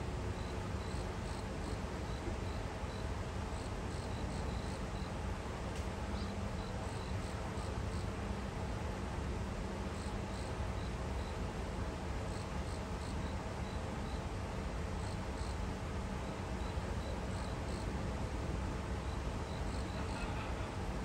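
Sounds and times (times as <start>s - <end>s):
insects chirping: 0.4s - 5.1s, 6.1s - 8.1s, 10.0s - 11.4s, 12.2s - 14.3s, 15.0s - 15.6s, 16.3s - 17.9s, 19.0s - 20.8s.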